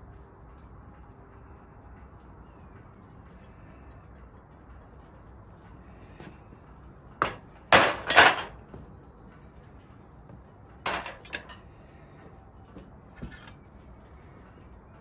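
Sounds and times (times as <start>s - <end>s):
metal tongs clanking on crucible: 7.2s - 8.7s, 10.8s - 11.7s.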